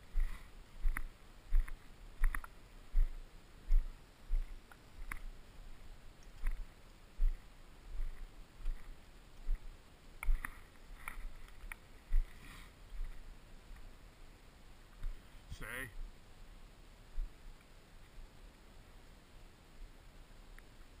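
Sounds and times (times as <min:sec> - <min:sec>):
footsteps in grass: 0:00.0 - 0:13.3.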